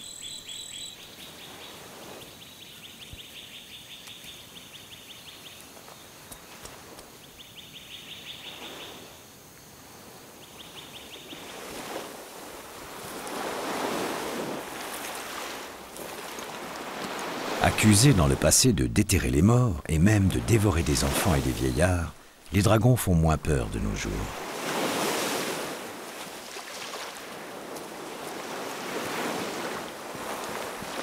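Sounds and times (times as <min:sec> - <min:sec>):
waves washing on a beach: 0:01.2 - 0:02.4, 0:09.8 - 0:31.0.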